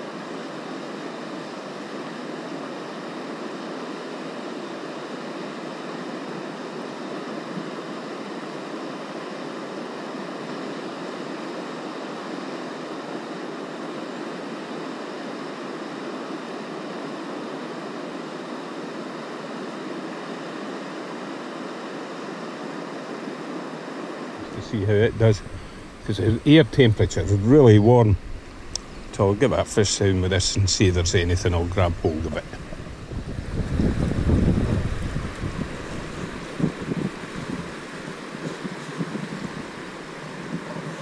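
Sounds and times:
river water rushing: 31.9 - 41.0.

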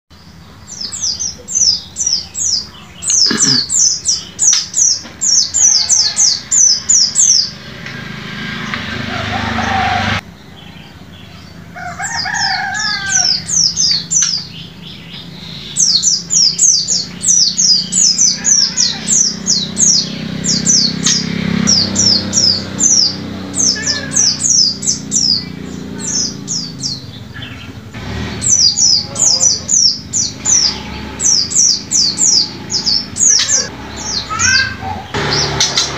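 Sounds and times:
bird singing high notes: 0.7 - 35.9.

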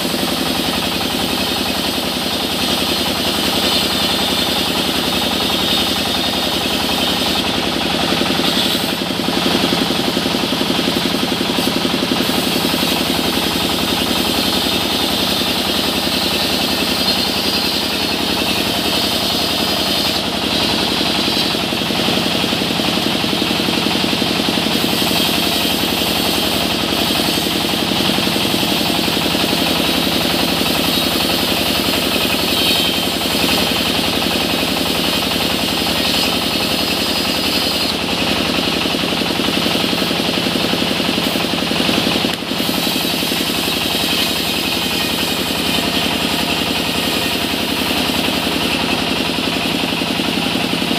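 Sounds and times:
band saw and engine pulsing: 0.0 - 50.9.

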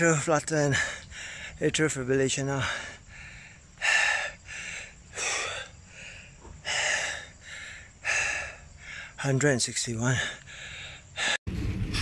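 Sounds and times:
man panting hard: 0.6 - 1.7, 2.5 - 9.2, 10.0 - 11.4.

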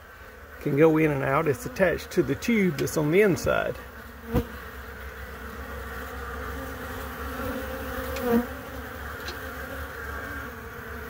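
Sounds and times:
bee passing close: 0.0 - 11.0
bees buzzing at hive: 0.0 - 11.0.

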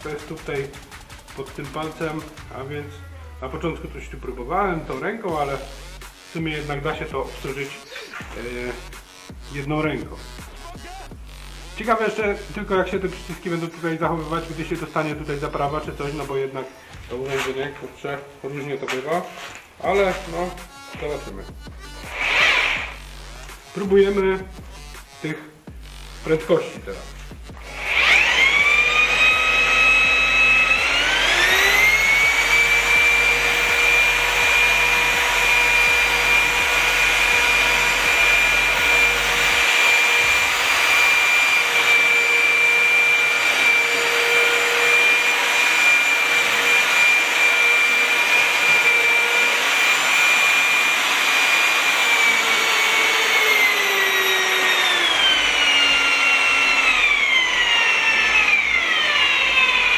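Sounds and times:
electric mixer motor whining: 22.0 - 23.6, 27.2 - 59.9.

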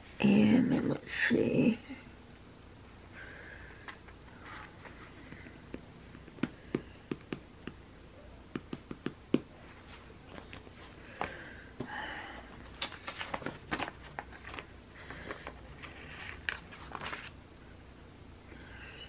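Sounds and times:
paper sticker sheet taps and clicks: 5.3 - 7.8, 8.5 - 9.5.

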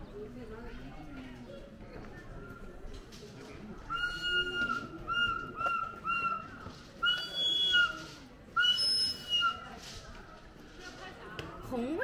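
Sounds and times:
person whistling notes: 3.9 - 8.0, 8.6 - 9.6.

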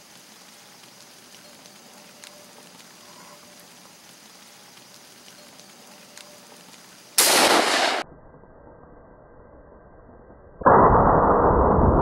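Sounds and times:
gunshot blasts: 7.2 - 8.0.

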